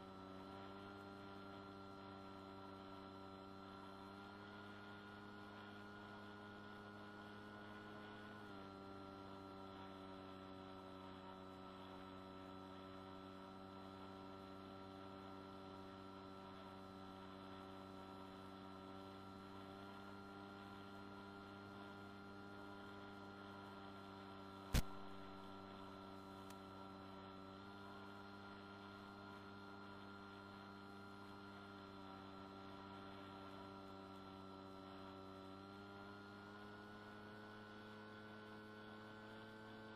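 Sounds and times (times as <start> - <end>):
model aircraft motor humming: 0.0 - 39.9
sharp click: 24.7 - 25.3.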